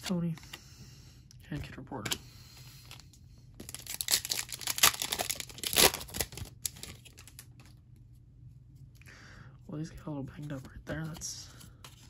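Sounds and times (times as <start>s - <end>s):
plastic wrapper tearing and crinkling: 3.6s - 7.7s.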